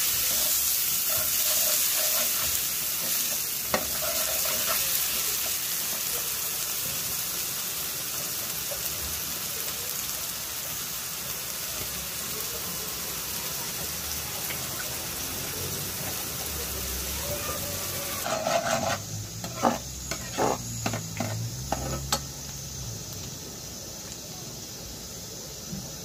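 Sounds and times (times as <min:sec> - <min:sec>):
onions sizzling in oil: 0:00.0 - 0:26.0
ladle scraping metal pan: 0:18.2 - 0:22.1.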